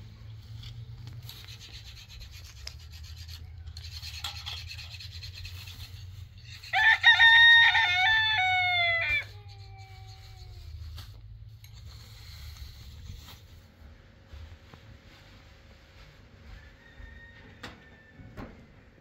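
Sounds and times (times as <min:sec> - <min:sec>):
rooster crowing: 0:06.6 - 0:10.2, 0:16.4 - 0:18.8.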